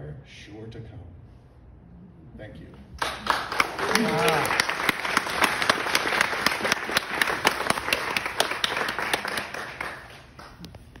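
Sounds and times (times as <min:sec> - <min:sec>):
small audience applauding: 0:03.0 - 0:11.0.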